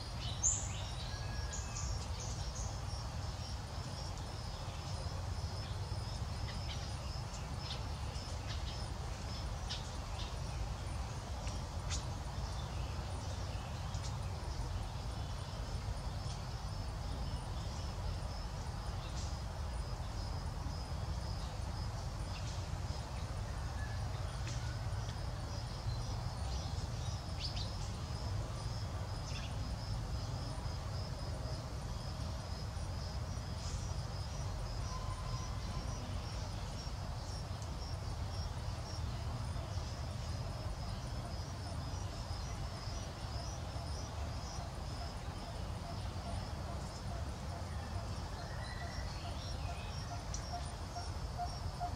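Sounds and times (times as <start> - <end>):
insects chirping: 0.0 - 51.9.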